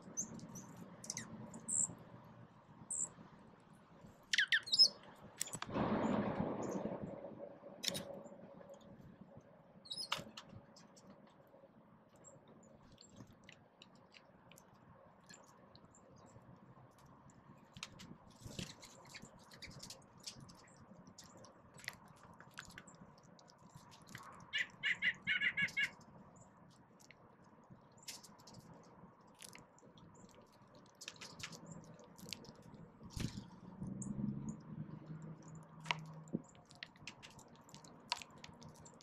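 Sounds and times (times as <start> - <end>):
birds pecking at seed: 12.2 - 39.0.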